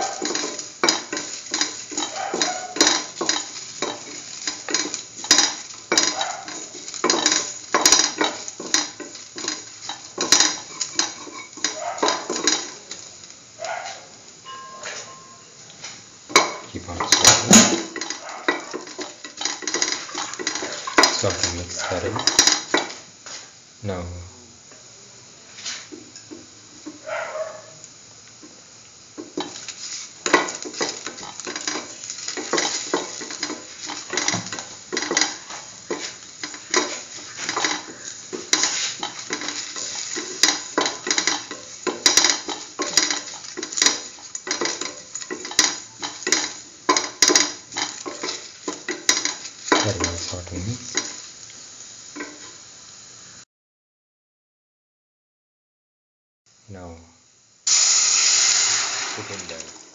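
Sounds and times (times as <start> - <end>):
spatula scraping pan bottom: 0.0 - 12.6, 29.4 - 50.3
onions sizzling in oil: 0.0 - 53.4, 56.5 - 59.9.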